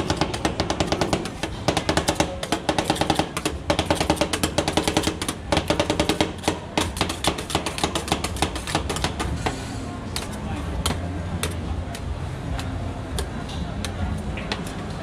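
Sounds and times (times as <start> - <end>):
metal spatulas chopping on steel: 0.0 - 9.6.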